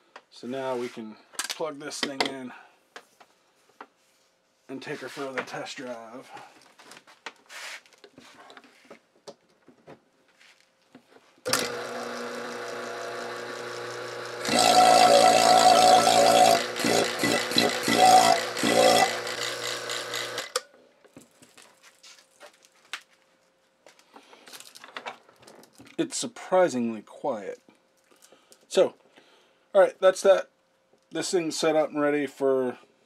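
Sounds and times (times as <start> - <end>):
vacuum pump motor humming: 11.5 - 20.6.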